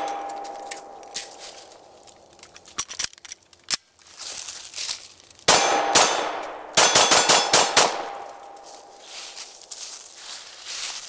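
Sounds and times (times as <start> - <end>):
pistol shots: 5.5 - 8.5.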